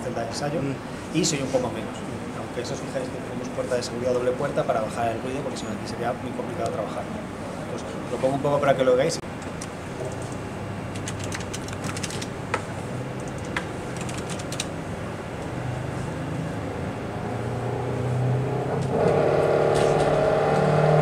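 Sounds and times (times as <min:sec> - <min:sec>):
control console clicks: 0:13.2 - 0:14.7
muffled motorcycle engine: 0:15.6 - 0:21.0.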